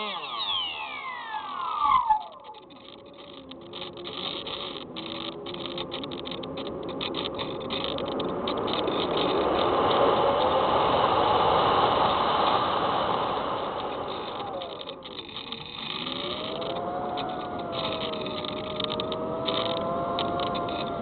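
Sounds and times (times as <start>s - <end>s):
electric motor and propeller hum: 0.0s - 21.0s
rushing airflow: 9.3s - 14.9s.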